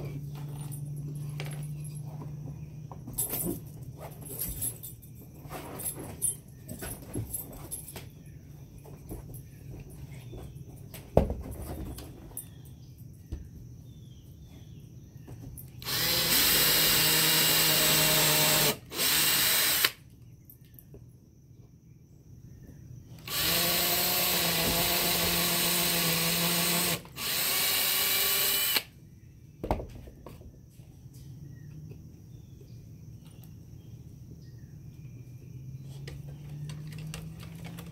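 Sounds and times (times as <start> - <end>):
cordless drill boring into wood: 15.8 - 20.0, 23.2 - 28.9.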